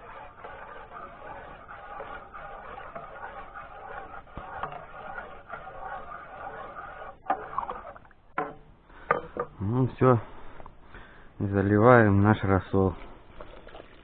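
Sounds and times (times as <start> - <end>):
spoon stirring in a pot: 0.0 - 8.6.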